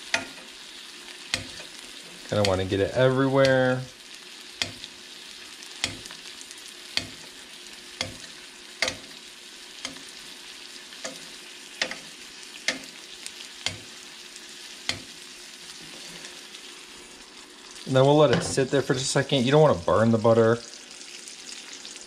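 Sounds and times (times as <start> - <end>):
steak sizzling in a frying pan: 0.0 - 22.0
metal spoon clinking on pan: 11.8 - 12.1.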